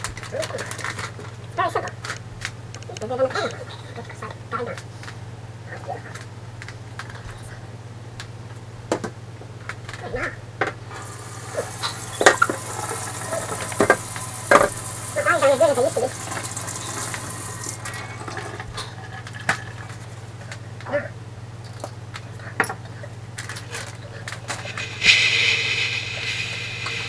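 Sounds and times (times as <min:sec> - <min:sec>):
faucet running into sink: 0:10.9 - 0:19.8.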